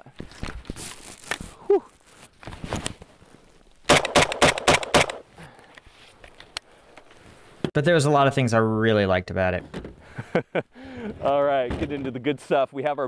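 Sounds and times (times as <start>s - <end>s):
rifle firing rapid shots: 3.9s - 5.2s.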